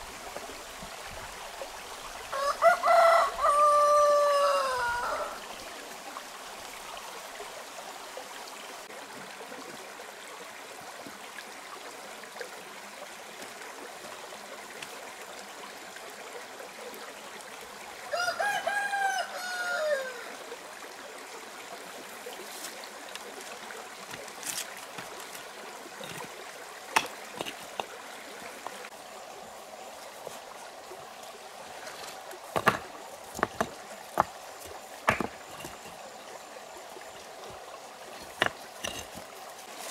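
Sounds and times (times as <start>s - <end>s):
stream trickling over rocks: 0.0s - 39.9s
rooster crowing: 2.3s - 5.4s, 18.1s - 20.3s
stone knocking on stone: 27.0s - 27.9s, 32.5s - 36.0s, 38.2s - 39.2s.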